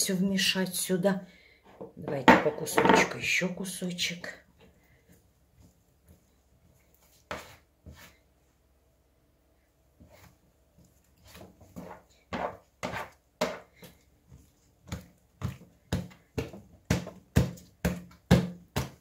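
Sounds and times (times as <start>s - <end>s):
dough slapped on table: 15.9s - 19.0s.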